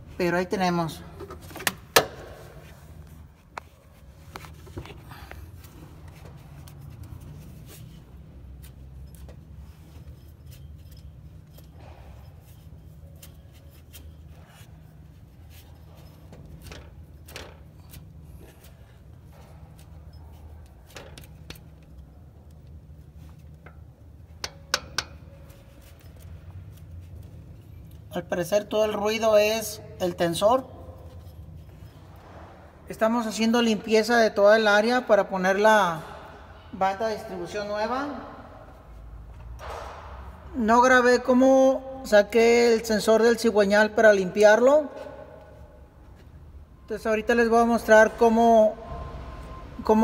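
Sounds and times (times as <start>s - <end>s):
low steady hum: 0.0s - 50.0s
metal tools clinking: 6.7s - 22.2s.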